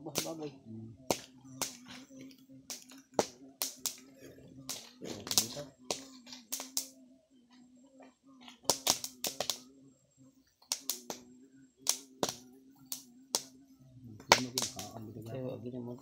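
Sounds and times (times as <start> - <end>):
wood fire crackling and popping: 0.0 - 7.0, 8.4 - 9.6, 10.6 - 11.2, 11.8 - 13.5, 14.2 - 15.0.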